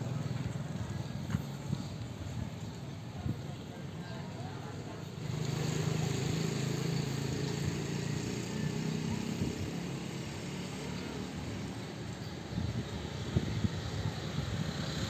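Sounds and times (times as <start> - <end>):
traffic noise: 0.0 - 15.0
vehicle engine running: 5.0 - 15.0.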